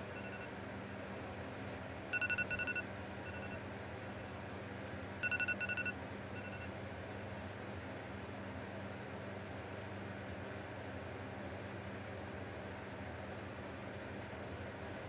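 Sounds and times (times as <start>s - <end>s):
electronic alarm beeping: 0.1s - 0.5s, 2.1s - 3.6s, 5.2s - 6.7s.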